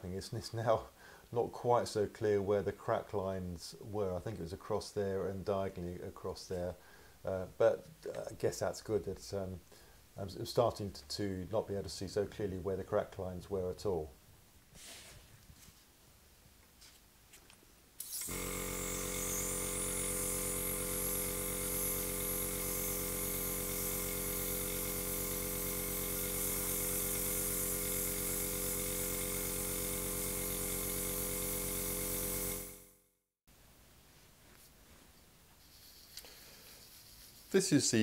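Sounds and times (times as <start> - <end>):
airbrush hissing: 18.0 - 32.8, 35.6 - 38.0
air compressor humming: 18.0 - 33.0.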